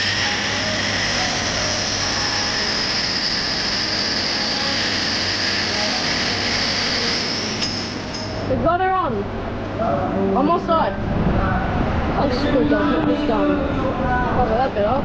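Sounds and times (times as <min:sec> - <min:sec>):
angle grinder cutting steel: 0:00.0 - 0:08.0.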